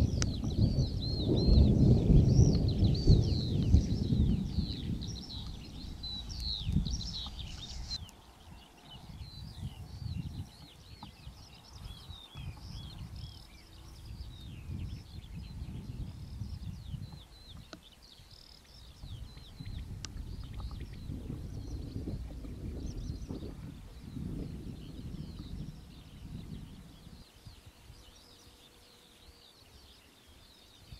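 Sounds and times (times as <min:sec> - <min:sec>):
distant thunder rumble: 0:00.0 - 0:07.2
small birds chirping: 0:00.0 - 0:30.9.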